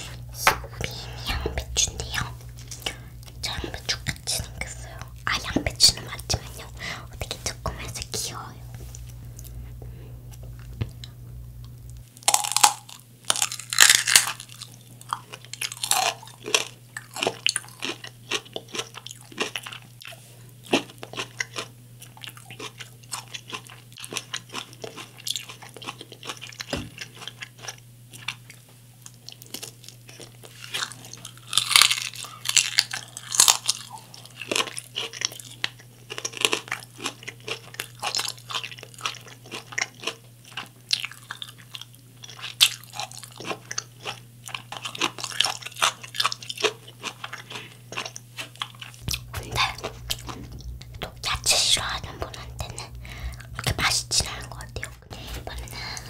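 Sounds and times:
crunching bites: 0:12.2 - 0:19.7, 0:29.4 - 0:50.6
chewing: 0:12.2 - 0:56.0.

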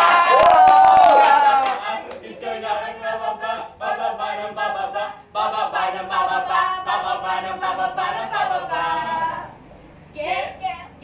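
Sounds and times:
group of people singing: 0:01.4 - 0:09.7.

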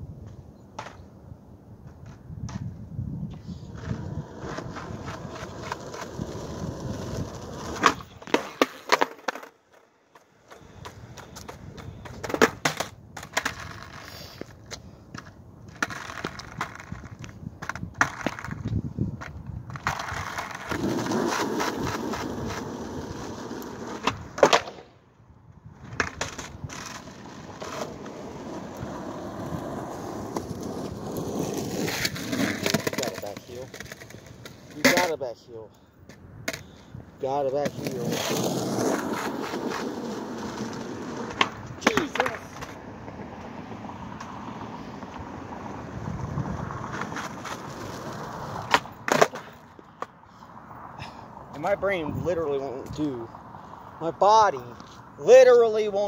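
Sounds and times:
skateboard wheels rolling on asphalt: 0:00.0 - 0:56.0
skateboard clacking on pavement: 0:00.7 - 0:01.1, 0:01.8 - 0:24.9, 0:25.8 - 0:35.2, 0:36.0 - 0:36.7, 0:37.4 - 0:45.6, 0:46.3 - 0:50.2
skateboard tail pop: 0:24.0 - 0:24.9.

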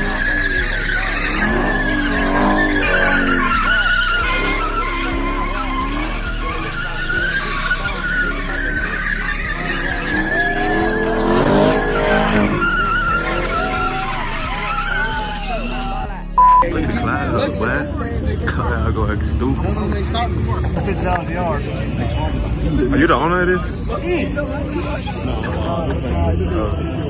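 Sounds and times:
tyres squealing on concrete: 0:00.0 - 0:16.6
car engine revving: 0:00.0 - 0:27.0.

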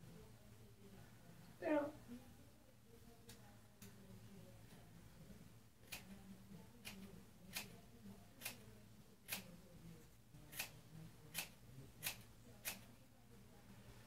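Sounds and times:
scissors snipping hair: 0:05.8 - 0:06.2, 0:06.8 - 0:07.8, 0:08.4 - 0:08.7, 0:09.3 - 0:09.6, 0:10.5 - 0:12.9.

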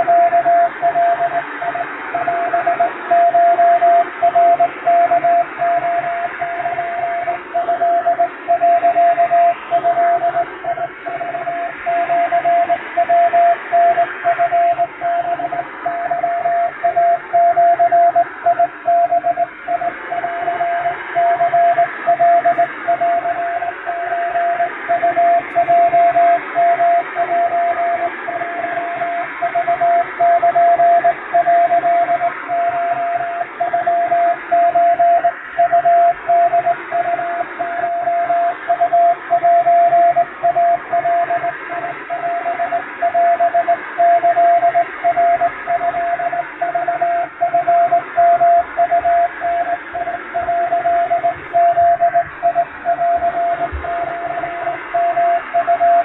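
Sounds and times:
morse code beeps: 0:00.0 - 0:56.0
radio hiss and static: 0:49.3 - 0:55.6.

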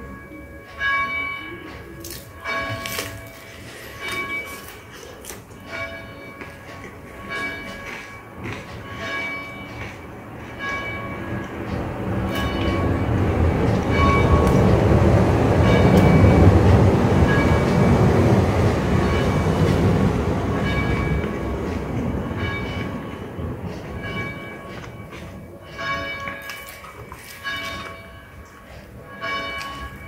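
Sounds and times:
passing vehicle rumble: 0:10.2 - 0:25.0.

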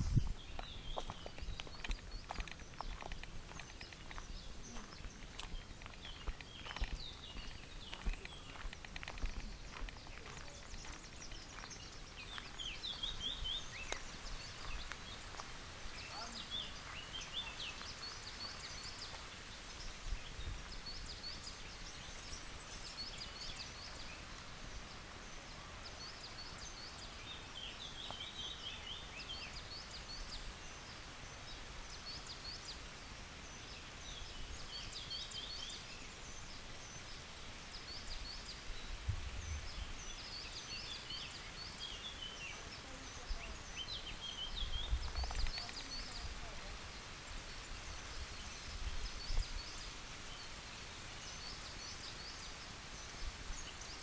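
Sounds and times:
wind rumble on microphone: 0:00.0 - 0:15.2, 0:19.8 - 0:22.7, 0:37.9 - 0:40.4, 0:43.3 - 0:46.8, 0:47.4 - 0:49.8
faint steady hiss: 0:00.0 - 0:54.0
small birds chirping: 0:00.0 - 0:54.0.

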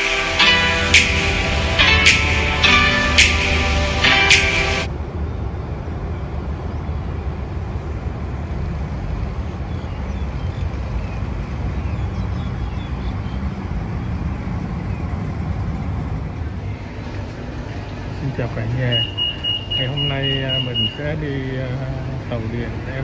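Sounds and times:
street noise: 0:00.0 - 0:23.0
traffic rumble: 0:00.0 - 0:23.0
faint high chirps: 0:18.1 - 0:21.6.

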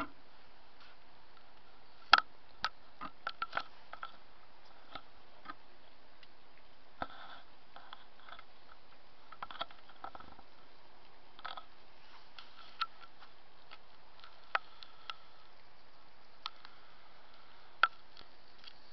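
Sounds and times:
faint background hum: 0:00.0 - 0:18.9.

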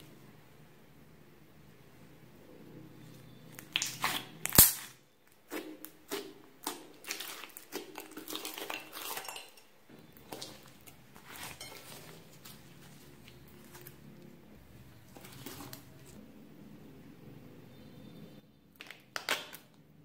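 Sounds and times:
hands squishing slime: 0:03.5 - 0:14.4.

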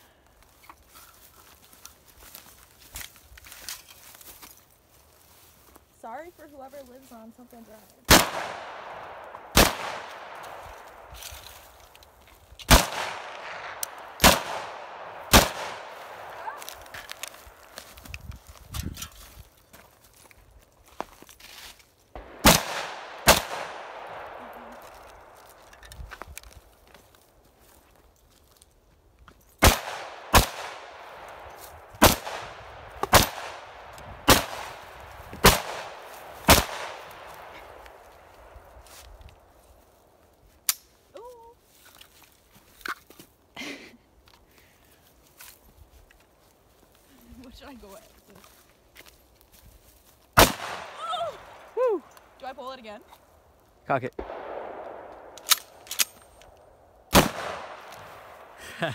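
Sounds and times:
rifle shots echoing: 0:08.1 - 0:11.8, 0:12.7 - 0:17.8, 0:22.2 - 0:25.6, 0:29.6 - 0:38.7, 0:50.4 - 0:51.7, 0:54.2 - 0:56.5, 0:57.1 - 0:58.6.

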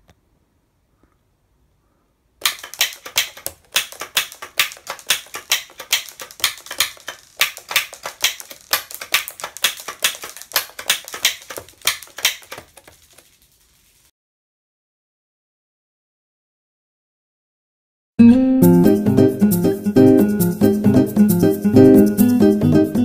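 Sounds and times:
sharp keyboard clicks: 0:02.4 - 0:14.0.

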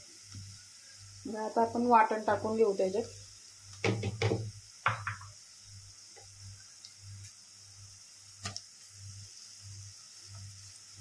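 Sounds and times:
faint frying sizzle: 0:00.0 - 0:11.0
spoon knocking on pot: 0:03.8 - 0:05.3.

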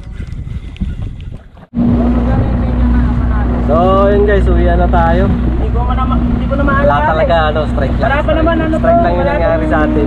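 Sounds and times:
boat engine humming: 0:00.0 - 0:10.0
water lapping against boat: 0:00.0 - 0:10.0
wind buffeting microphone: 0:00.0 - 0:10.0.

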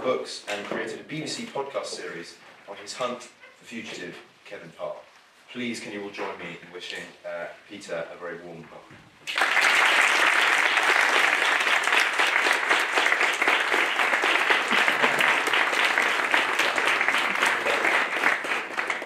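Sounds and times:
audience applauding: 0:09.3 - 0:19.0.

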